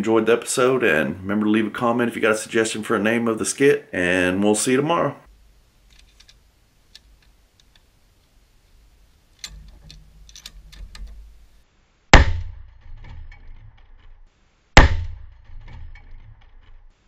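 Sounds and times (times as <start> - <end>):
rifle handling clicks: 9.4 - 11.2.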